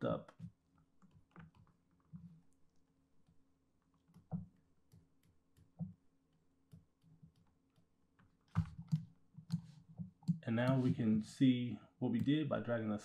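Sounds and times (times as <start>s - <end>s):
mouse and keyboard clicks: 8.5s - 11.0s.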